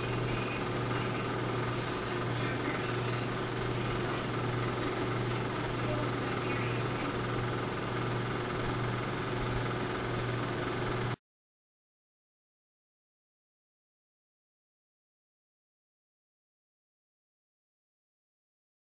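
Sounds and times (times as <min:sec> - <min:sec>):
steady low hum with hiss: 0:00.0 - 0:11.2.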